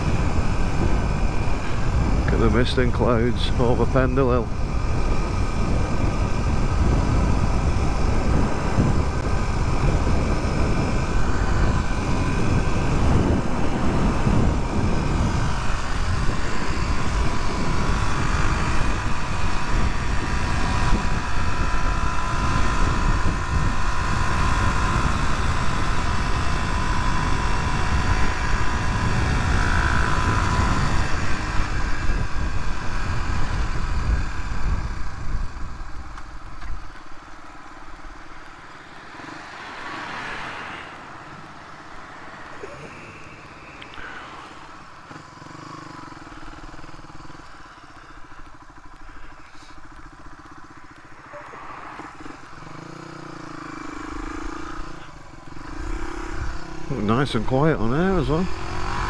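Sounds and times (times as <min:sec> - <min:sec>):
wind rushing on microphone: 0:00.0 - 0:36.9, 0:54.1 - 0:59.0
motorcycle engine riding: 0:00.0 - 0:59.0.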